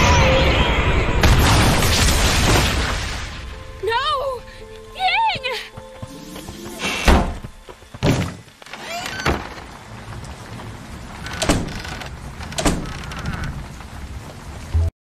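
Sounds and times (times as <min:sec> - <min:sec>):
steady rain: 0:01.6 - 0:06.8, 0:07.4 - 0:14.9
door slamming shut: 0:07.0 - 0:07.4, 0:11.4 - 0:13.0.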